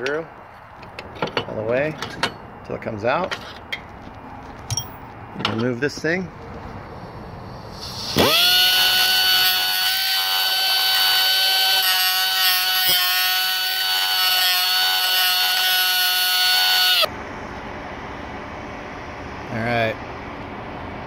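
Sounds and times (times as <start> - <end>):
cut-off tool grinding whine: 7.8 - 17.1.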